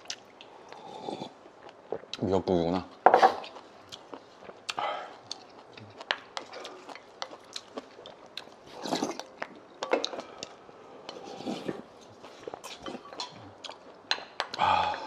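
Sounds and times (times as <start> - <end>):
chewing: 3.4 - 14.6.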